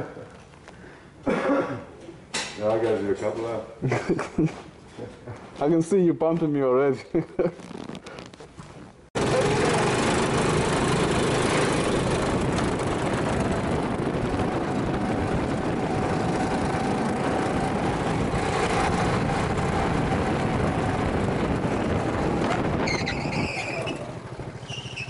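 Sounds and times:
go-kart engine running: 9.2 - 25.0
rushing wind noise: 9.2 - 25.0.

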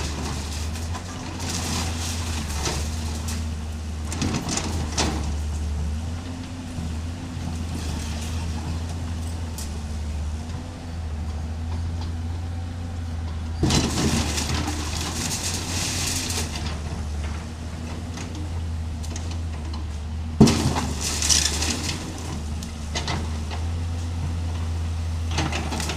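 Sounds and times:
timber and metal crashing: 0.0 - 5.6, 13.6 - 17.1, 20.4 - 23.4
excavator engine running: 0.0 - 25.9.

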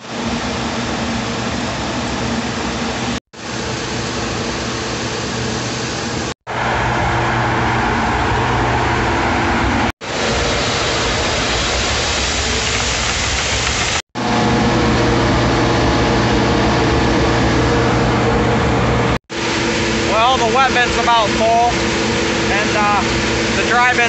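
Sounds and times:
truck and machinery droning: 0.0 - 12.8, 13.4 - 24.0
grain pouring hiss: 10.0 - 14.0, 19.4 - 24.0.

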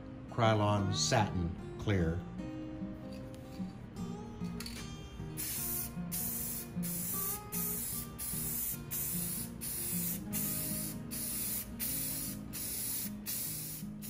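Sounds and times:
aerosol can spraying: 4.6 - 14.0.

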